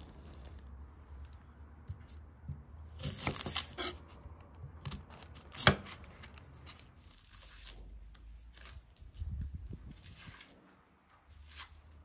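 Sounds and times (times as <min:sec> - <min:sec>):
onion skin crackling: 0:02.8 - 0:04.1, 0:05.0 - 0:10.6
knife scraping onion skin: 0:02.8 - 0:04.2, 0:04.8 - 0:08.8, 0:09.8 - 0:10.6, 0:11.3 - 0:12.0.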